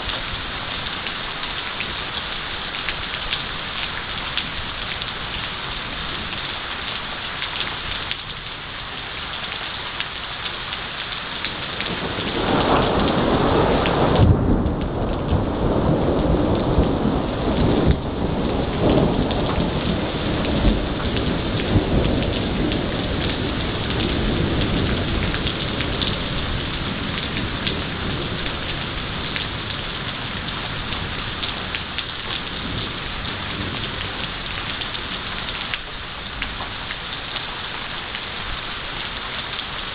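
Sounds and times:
heavy rain falling: 0:00.0 - 0:39.9
thunder rumbling: 0:11.6 - 0:35.2.

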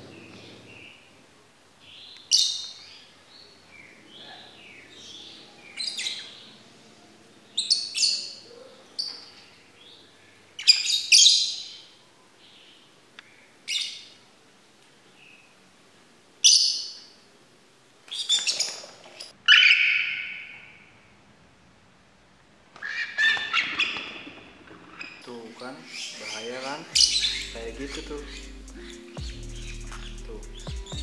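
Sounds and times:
birds chirping: 0:00.0 - 0:14.2, 0:25.0 - 0:31.0
birds chattering: 0:01.8 - 0:14.1, 0:25.0 - 0:31.0.

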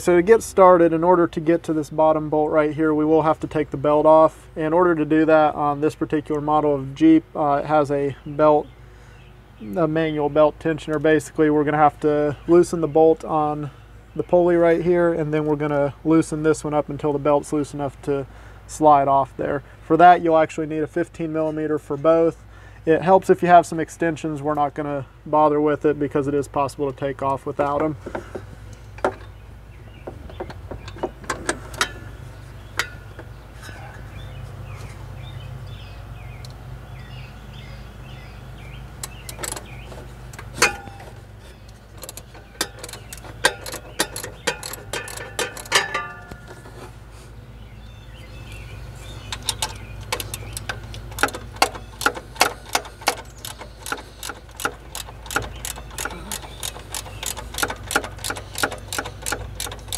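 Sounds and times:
low steady hum: 0:00.0 - 0:59.9
socket ratchet clicking: 0:42.0 - 0:46.4, 0:49.3 - 0:59.9.

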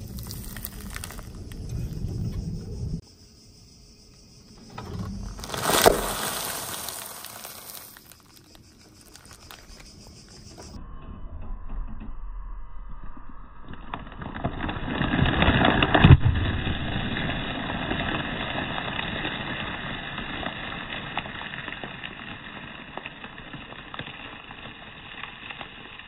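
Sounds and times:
plastic bag crinkling: 0:00.0 - 0:01.6, 0:05.1 - 0:10.0
snack puffs crunching: 0:00.0 - 0:01.8, 0:04.9 - 0:10.1.

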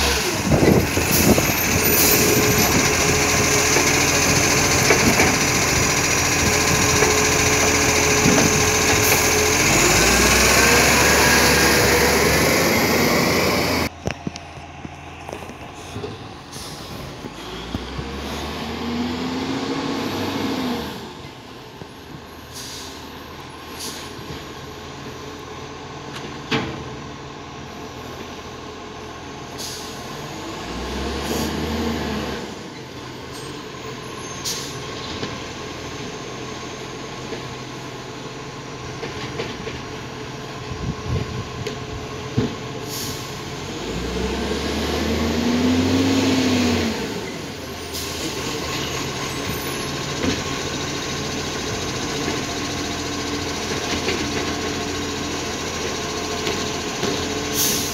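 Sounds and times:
truck diesel engine revving: 0:00.0 - 0:14.0, 0:15.6 - 0:21.8, 0:29.7 - 0:32.7, 0:42.8 - 0:57.9
air brake hisses: 0:16.5 - 0:17.6, 0:22.4 - 0:23.1, 0:23.7 - 0:24.2, 0:29.5 - 0:30.0, 0:42.8 - 0:43.4, 0:57.5 - 0:57.9.

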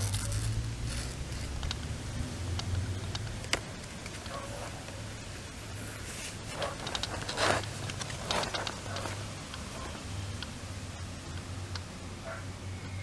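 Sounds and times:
book rustling: 0:05.7 - 0:10.0.

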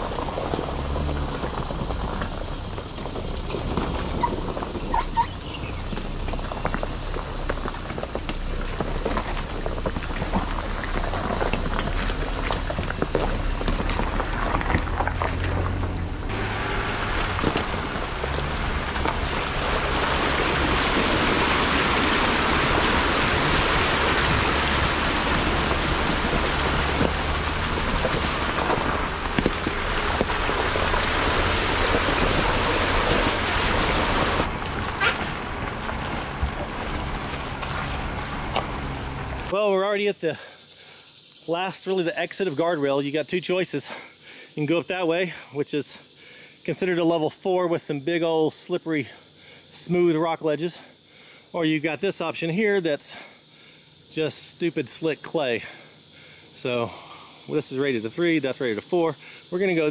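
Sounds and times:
vehicle engine running: 0:00.0 - 0:39.6
steady hiss: 0:38.9 - 0:59.9.

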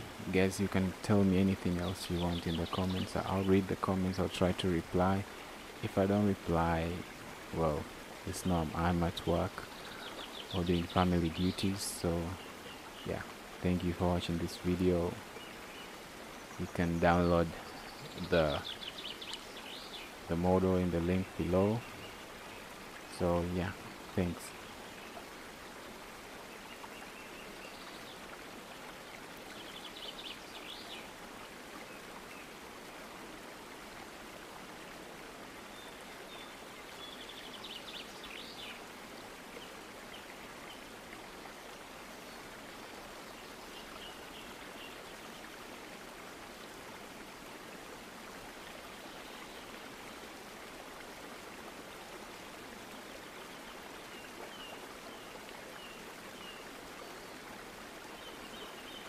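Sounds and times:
background hiss: 0:00.0 - 0:59.0.

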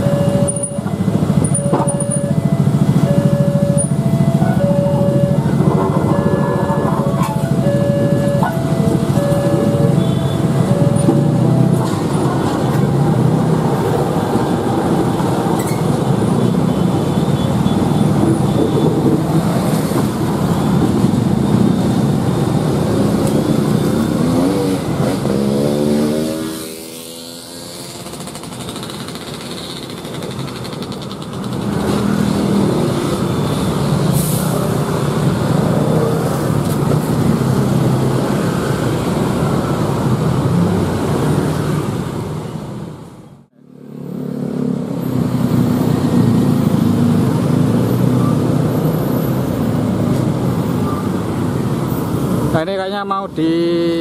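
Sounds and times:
locomotive engine drone: 0:00.0 - 0:16.8.

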